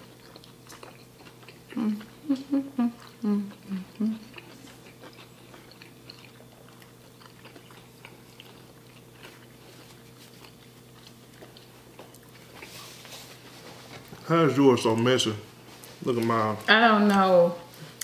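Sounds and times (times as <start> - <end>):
faint steady hum: 0.0 - 18.0
chewing mouth clicks and smacks: 0.1 - 2.1, 4.3 - 12.7.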